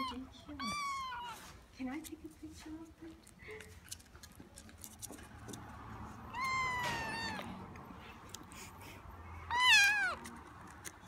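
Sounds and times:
kitten meowing: 0.0 - 1.4, 6.3 - 7.6, 9.5 - 10.3.

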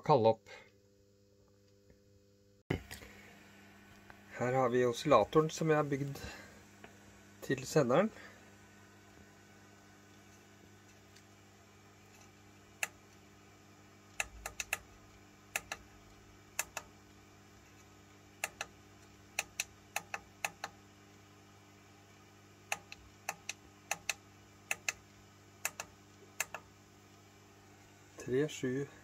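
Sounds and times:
steady low hum: 0.0 - 29.0
push buttons clicking: 14.1 - 14.9, 15.5 - 15.9, 16.6 - 16.9, 18.4 - 18.8, 19.4 - 20.8, 22.7 - 25.0, 25.6 - 26.7.

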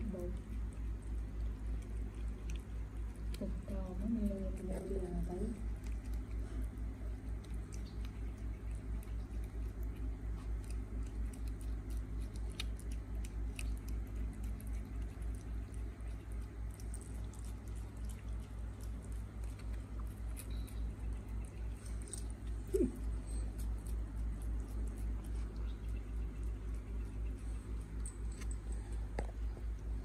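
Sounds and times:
cat licking wetly: 5.6 - 22.5.

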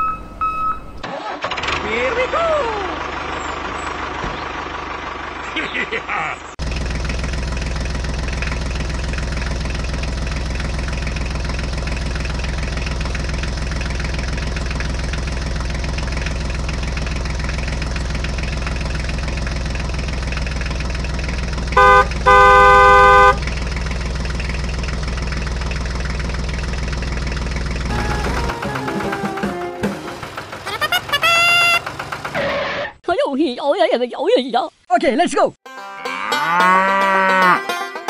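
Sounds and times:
truck engine droning: 0.0 - 33.0
horn honking: 21.7 - 23.5, 27.9 - 32.0, 35.7 - 38.0.

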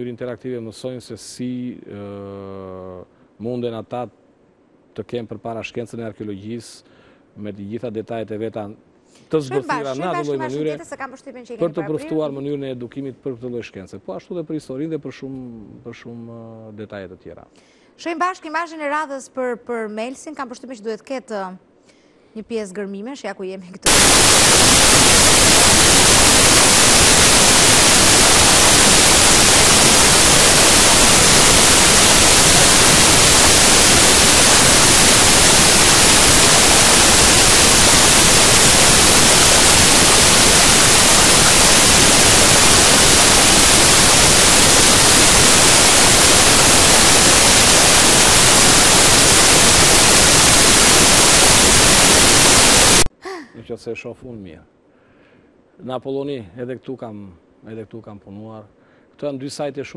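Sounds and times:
static hiss: 9.3 - 12.4, 23.8 - 53.1.

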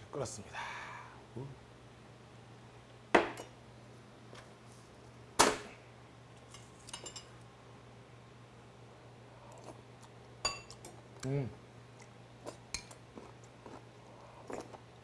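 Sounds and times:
spoon clinking in bowl: 10.4 - 10.9.

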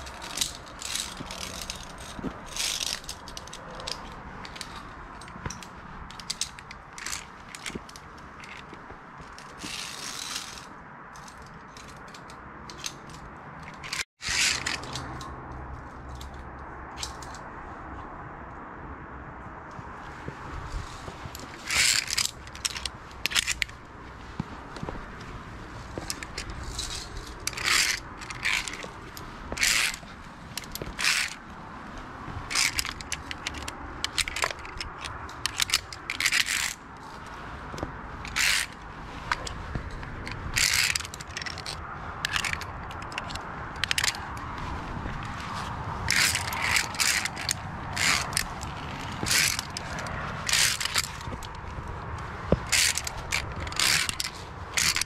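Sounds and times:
metal clinks on steel cable: 0.0 - 15.3.

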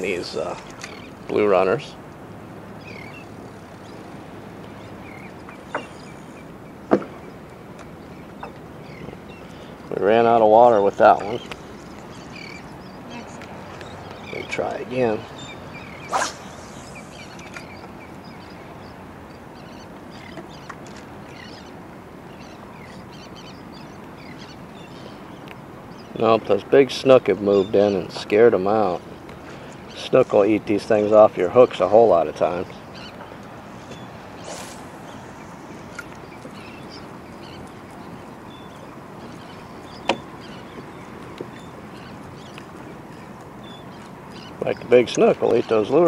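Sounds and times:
water: 0.0 - 46.0
wind: 0.0 - 46.0
bird chirps: 15.2 - 19.0.

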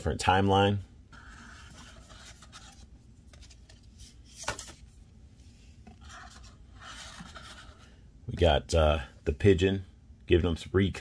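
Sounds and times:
card sliding and scraping: 1.1 - 4.8, 5.9 - 7.9.

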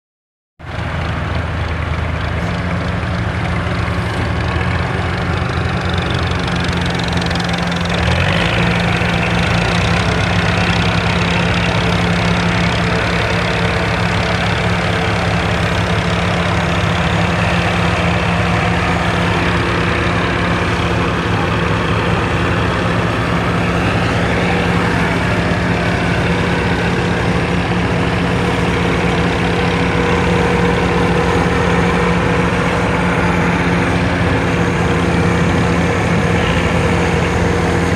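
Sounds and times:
heavy diesel engines under load: 0.6 - 37.9.

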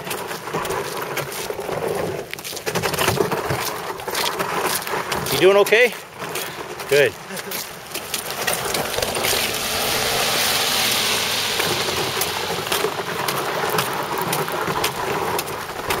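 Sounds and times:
hand cart rattling: 0.0 - 10.3, 11.6 - 16.0
footsteps on slush: 0.0 - 16.0
car tyres hissing on wet road: 6.5 - 16.0.

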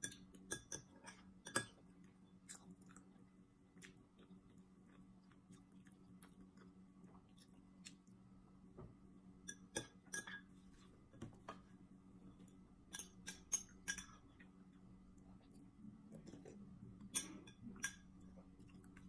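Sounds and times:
faint steady hum: 0.0 - 19.0
metal spoon clinking glass bowl: 12.9 - 14.2, 17.1 - 18.1.

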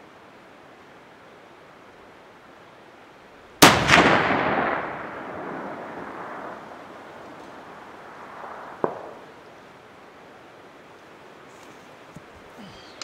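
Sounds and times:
rifle shot with rolling echo: 3.6 - 9.6.

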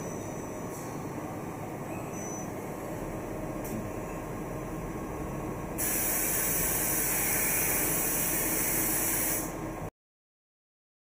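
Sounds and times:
compressed air hiss: 5.8 - 9.6.

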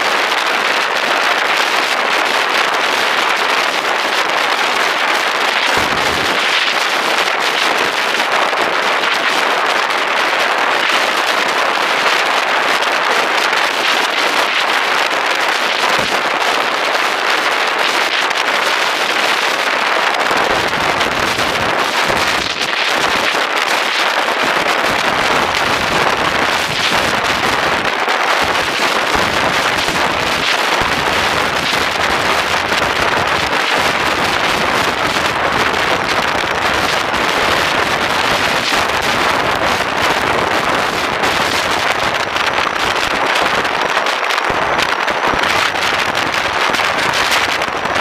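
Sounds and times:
wind rush over microphone: 0.0 - 48.0.

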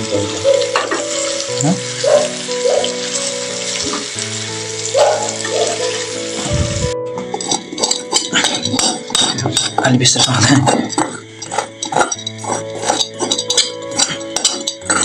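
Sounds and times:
background music: 0.0 - 15.0
food sizzling in a pan: 0.0 - 15.0.

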